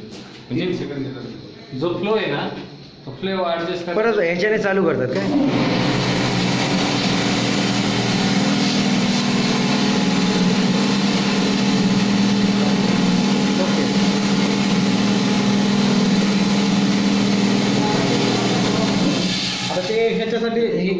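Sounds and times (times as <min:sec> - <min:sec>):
pump motor humming: 0:05.2 - 0:19.9.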